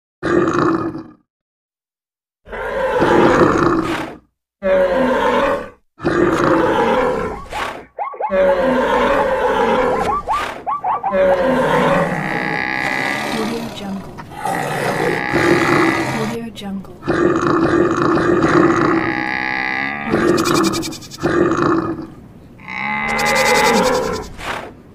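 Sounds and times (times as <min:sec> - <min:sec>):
animal roars and grunts: 0:00.2 - 0:01.3, 0:02.4 - 0:16.4, 0:17.0 - 0:24.7
wavering animal cries: 0:06.3 - 0:13.5, 0:18.9 - 0:21.4, 0:22.6 - 0:24.4.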